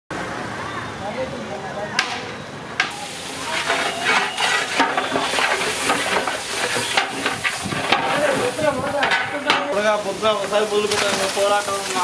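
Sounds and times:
masala sizzling: 2.8 - 12.0
metal ladle scraping pot: 3.4 - 9.8.

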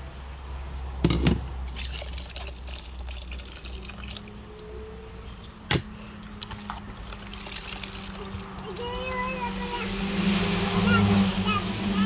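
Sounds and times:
liquid dripping and trickling: 1.7 - 4.7, 6.1 - 9.2.

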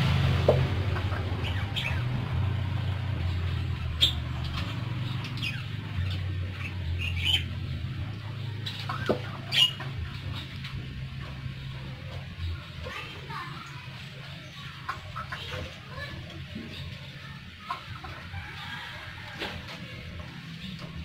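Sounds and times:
low hum: 0.0 - 13.0
parakeets chirping: 0.0 - 19.3.

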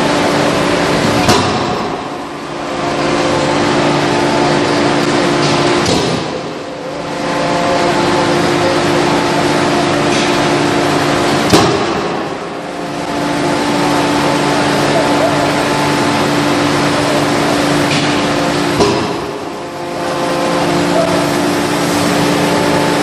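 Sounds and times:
machine hum: 0.0 - 23.0.

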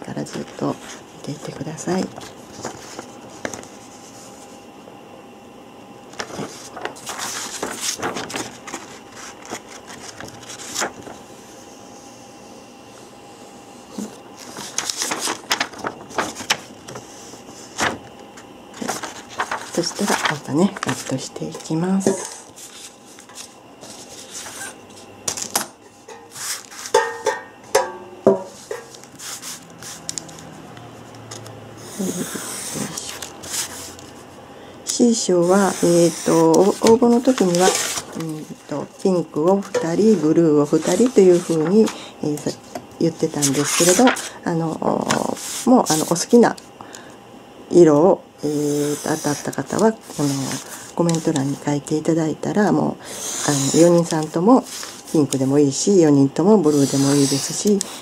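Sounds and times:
paper rustling and crinkling: 0.3 - 4.5, 6.1 - 11.3, 14.0 - 25.7, 35.4 - 42.1, 43.1 - 46.4, 53.2 - 55.5.

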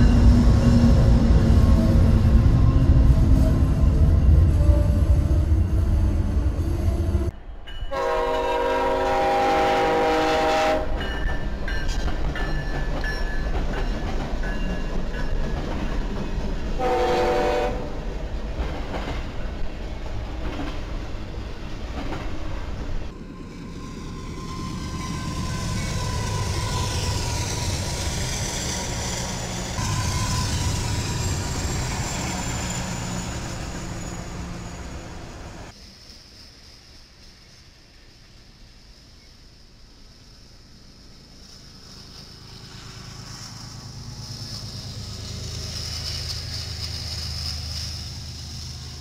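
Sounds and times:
freight cars rail and wheel noise: 0.0 - 49.0
train rumbling by: 0.0 - 49.0
locomotive air horn blasts: 7.9 - 11.0, 16.8 - 18.0, 29.8 - 30.8.

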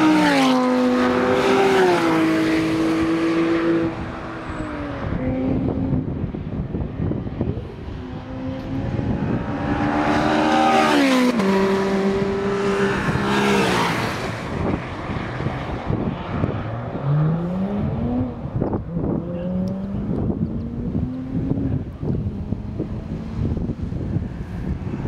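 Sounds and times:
supercar engines accelerating: 0.0 - 25.0
supercars passing at speed: 0.0 - 25.0.

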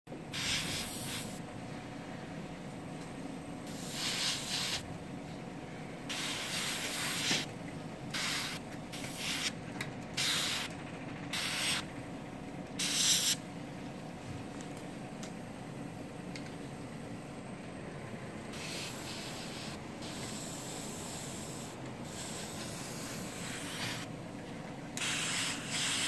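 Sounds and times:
airbrush spraying hiss: 0.3 - 1.4, 3.7 - 4.8, 6.1 - 7.5, 8.1 - 9.5, 10.2 - 10.7, 11.3 - 11.8, 12.8 - 13.4, 18.5 - 24.1, 25.0 - 26.0.

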